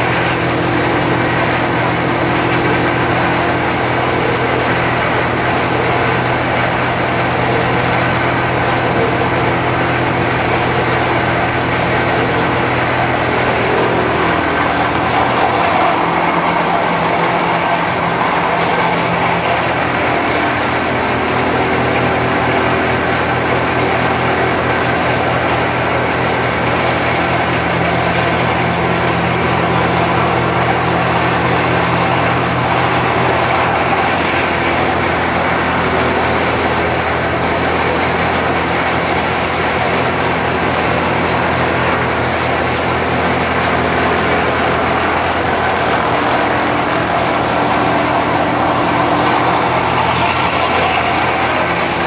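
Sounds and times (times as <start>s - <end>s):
machine mechanical hum: 0.0s - 52.0s.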